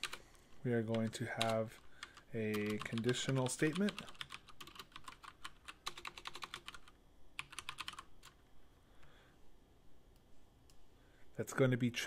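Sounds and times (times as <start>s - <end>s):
typing on computer keyboard: 0.0s - 0.2s, 0.9s - 8.4s.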